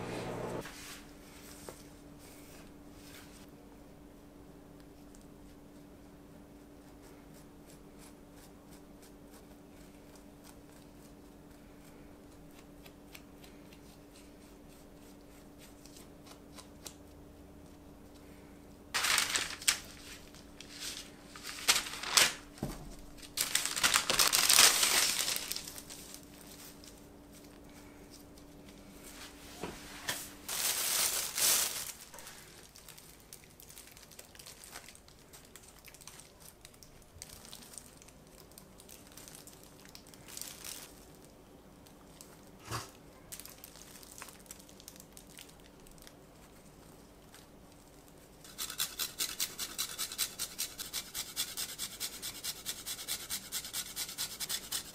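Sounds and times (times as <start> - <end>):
parchment paper crinkling: 19.0 - 28.9, 30.5 - 42.4.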